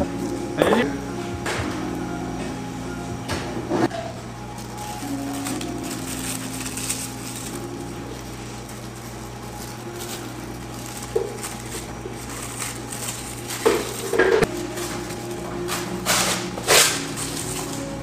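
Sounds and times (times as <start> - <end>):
steady low hum: 0.0 - 18.0
plastic film crinkling: 4.4 - 18.0.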